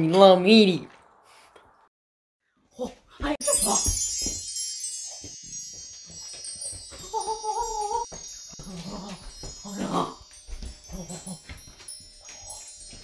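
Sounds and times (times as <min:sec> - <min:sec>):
high tinkling chimes: 0:03.4 - 0:13.0.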